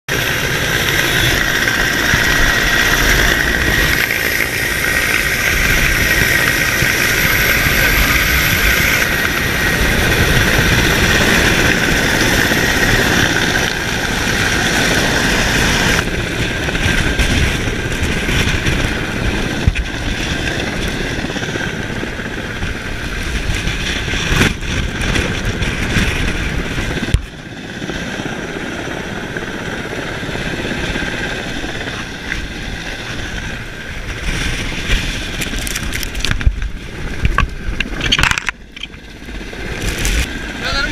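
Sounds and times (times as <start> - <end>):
helicopter turbine and rotor noise: 0.1 - 40.9
steady high whine: 0.1 - 40.9
wind buffeting microphone: 0.1 - 40.9.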